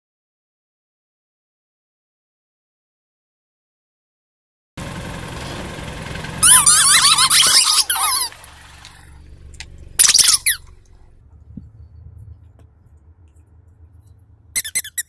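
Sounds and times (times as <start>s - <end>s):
low steady hum: 4.8s - 15.0s
rubber duck toys squeaking: 6.4s - 8.4s, 10.0s - 10.8s, 14.6s - 15.0s.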